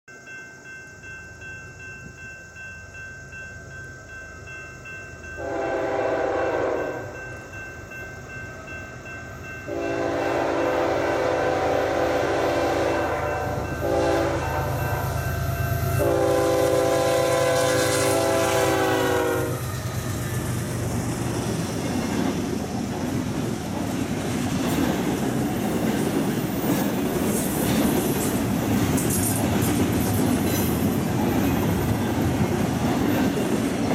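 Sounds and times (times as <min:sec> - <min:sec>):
train wheels and rail clatter: 0:01.0 - 0:33.9
train horn blasts: 0:05.4 - 0:07.2, 0:09.7 - 0:19.9.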